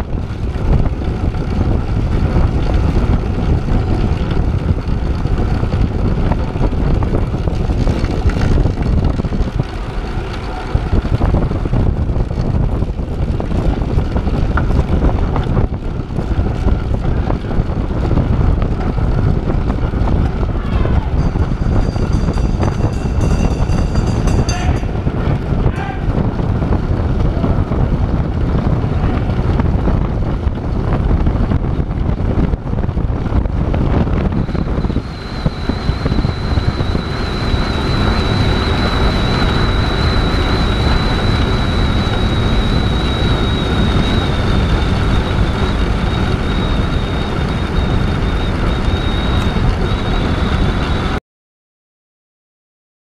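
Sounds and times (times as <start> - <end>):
wind rushing over microphone: 0.0 - 51.2
thin high whine: 20.7 - 26.2, 34.1 - 51.2.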